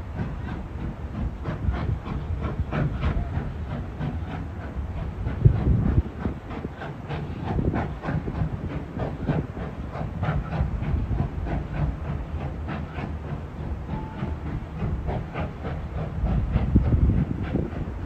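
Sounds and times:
steam hiss: 0.0s - 18.0s
train rumble on bridge: 0.0s - 18.0s.

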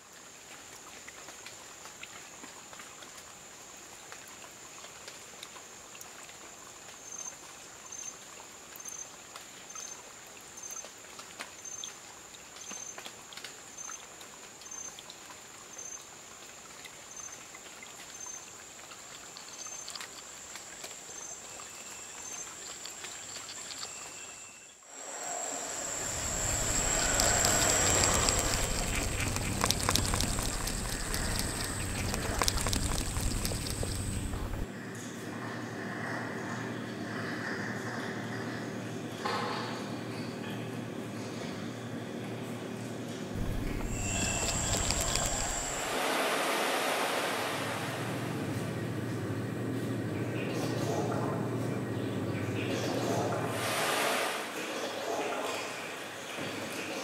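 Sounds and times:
high insect-like drone: 24.9s - 34.7s, 43.4s - 46.2s
soft hiss: 24.9s - 34.7s, 43.4s - 48.2s
loud crackling patter: 25.8s - 34.7s, 43.4s - 45.9s.

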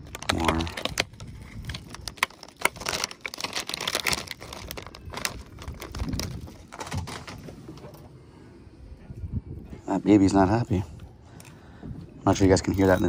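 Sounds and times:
plastic package crinkling: 0.0s - 7.5s.

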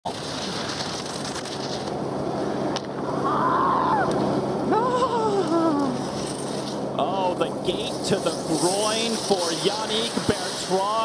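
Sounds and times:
wind and snow hiss of skiing: 0.1s - 11.0s
long drawn-out shouts: 3.2s - 5.6s.

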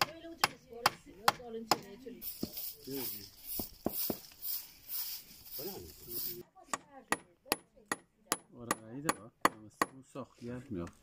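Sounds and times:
broom sweeping concrete: 2.1s - 6.4s.

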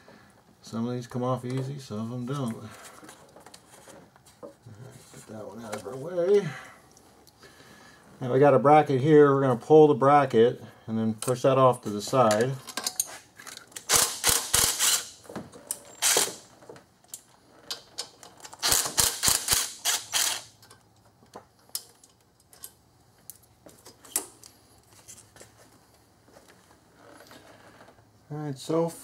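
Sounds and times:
power tool rattling bolts: 13.8s - 16.5s, 18.1s - 20.5s.

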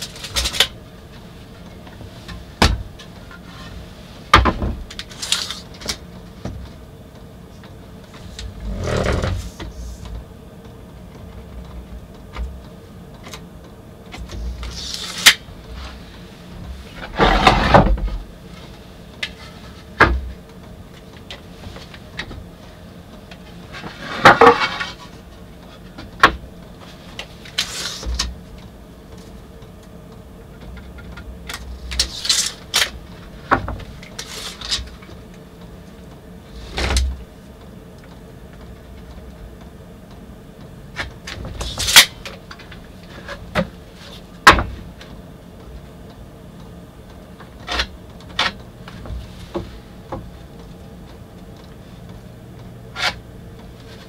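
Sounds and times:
faint steady hum: 0.0s - 54.0s
boards scraping: 8.2s - 10.1s, 16.8s - 18.2s, 23.7s - 25.1s.

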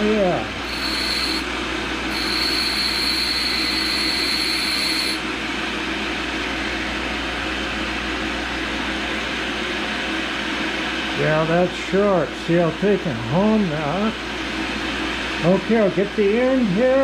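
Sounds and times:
grinder motor hum: 0.0s - 9.2s
tool grinding hiss: 0.6s - 1.5s, 2.1s - 5.2s.

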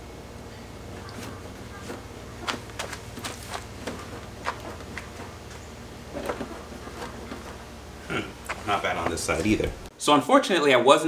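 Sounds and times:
steady low buzz: 0.0s - 10.0s
suspension clicks and creaks: 1.0s - 7.8s.

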